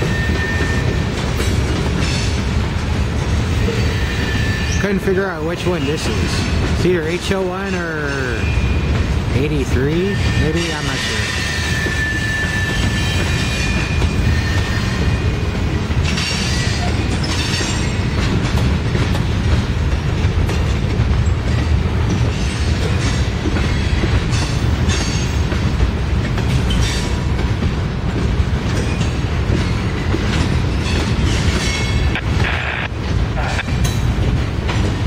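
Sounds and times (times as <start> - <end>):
high-pitched wheel squeals: 0.0 - 1.0, 3.6 - 4.8, 11.0 - 15.3
train wheels rumbling on rail: 0.0 - 35.0.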